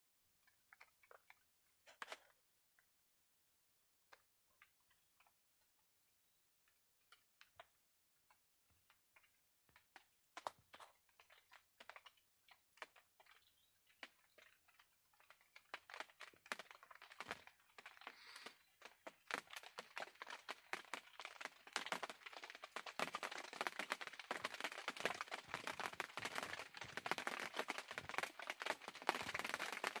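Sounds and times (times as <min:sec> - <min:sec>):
dry crackling and rustling: 0:07.1 - 0:30.0.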